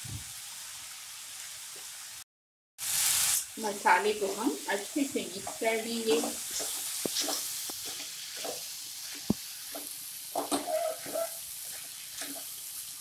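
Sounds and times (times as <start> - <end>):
vegetables sizzling in pan: 0.0 - 2.2, 2.8 - 13.0
spatula scraping pan: 4.2 - 12.6.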